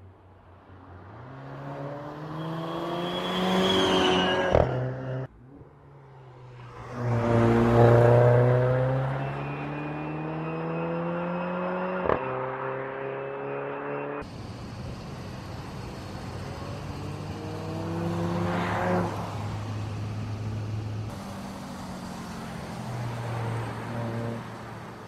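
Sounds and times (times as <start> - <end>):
car engine accelerating hard: 6.7 - 14.3, 15.2 - 24.8.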